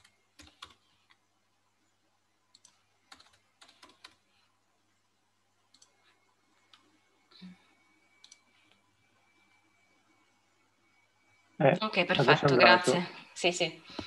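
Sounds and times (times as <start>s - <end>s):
faint keyboard typing: 0.0s - 1.4s, 2.4s - 4.6s, 5.6s - 11.3s.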